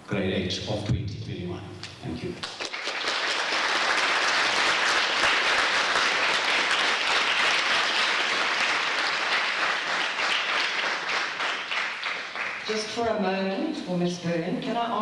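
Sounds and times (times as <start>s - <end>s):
audience applauding: 2.4s - 12.9s.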